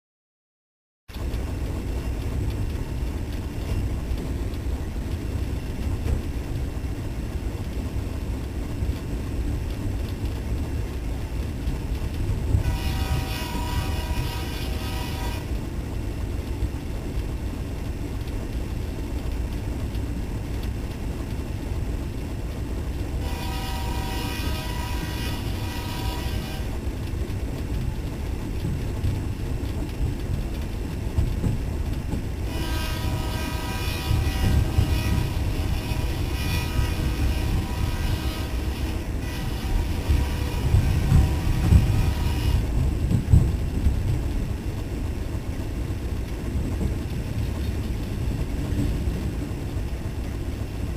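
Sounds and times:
diesel locomotive rumbling: 0:01.1 - 0:50.9
locomotive horn blasts: 0:12.6 - 0:15.5, 0:23.2 - 0:26.8, 0:32.4 - 0:42.7.

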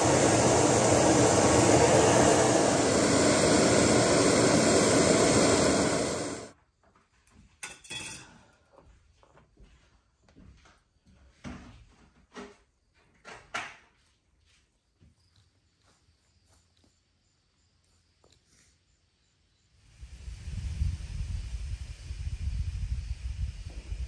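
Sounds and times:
loud rushing noise: 0:00.0 - 0:06.5.

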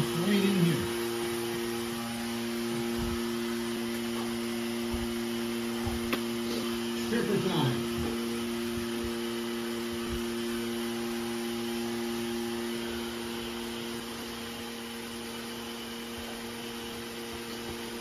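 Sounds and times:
air pump motor hum: 0:00.0 - 0:18.0.

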